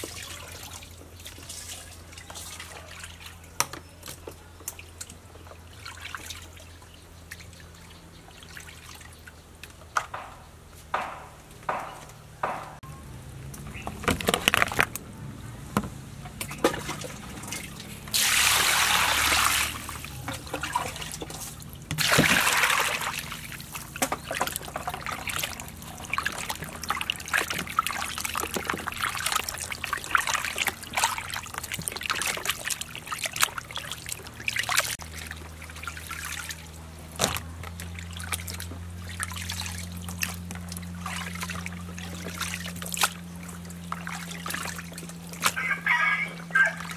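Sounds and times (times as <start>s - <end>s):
small splashes and drips: 0.0s - 9.8s, 16.3s - 45.7s
hands sloshing in water: 16.5s - 46.9s
water pouring into plastic basin: 16.8s - 36.7s.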